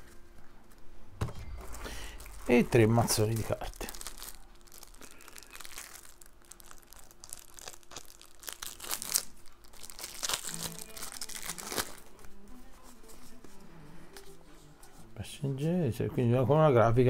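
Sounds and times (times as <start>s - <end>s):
plastic wrap crinkling and tearing: 1.5s - 12.4s.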